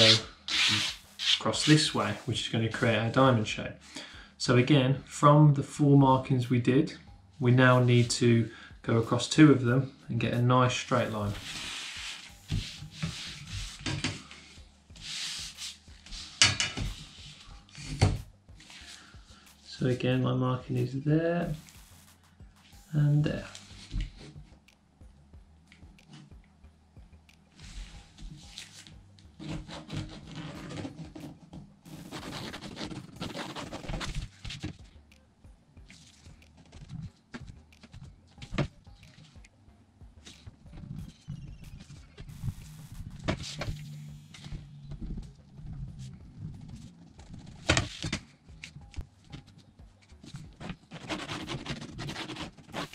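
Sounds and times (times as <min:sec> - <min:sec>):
metal ruler scraping across vinyl: 0:00.0 - 0:02.3, 0:10.9 - 0:14.2, 0:29.4 - 0:34.7, 0:50.4 - 0:52.9
ruler sliding over vinyl: 0:10.9 - 0:14.2, 0:15.0 - 0:18.0.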